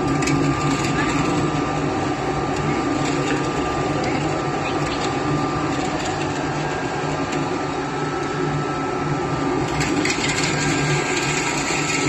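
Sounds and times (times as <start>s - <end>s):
extruder motor humming: 0.0s - 12.0s.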